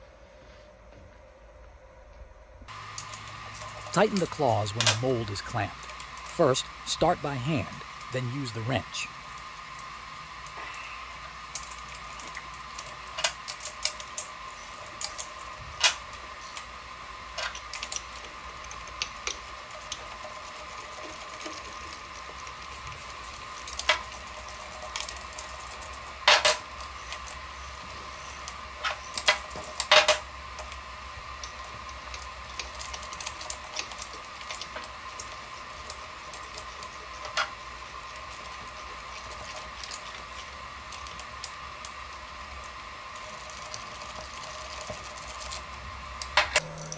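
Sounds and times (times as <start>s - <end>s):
stepper motor hum: 46.5s - 46.9s.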